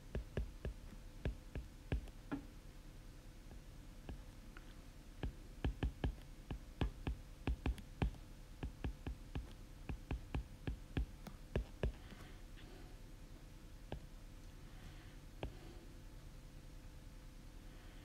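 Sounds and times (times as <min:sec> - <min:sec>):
stylus tapping on glass screen: 0:00.2 - 0:02.5, 0:05.2 - 0:12.2.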